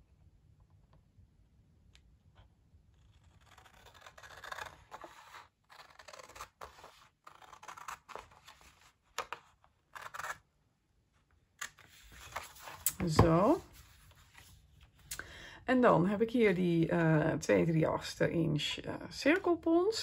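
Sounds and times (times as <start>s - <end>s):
scissors cutting paper: 3.0s - 10.4s.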